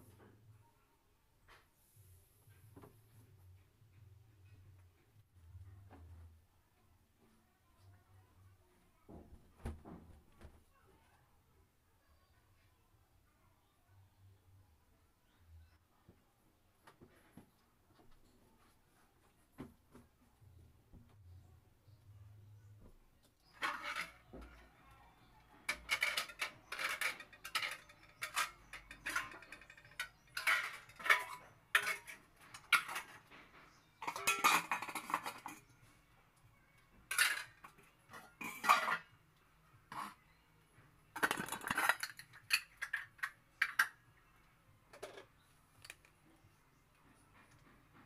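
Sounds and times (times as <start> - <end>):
dishes and utensils clattering: 23.4 - 24.7, 25.4 - 35.8, 37.0 - 39.2, 39.9 - 40.2, 41.2 - 44.0.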